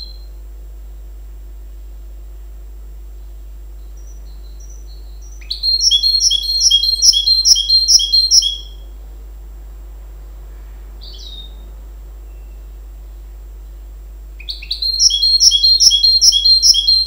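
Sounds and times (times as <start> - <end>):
finch singing: 3.2 - 8.9, 11.0 - 13.8, 14.4 - 17.0.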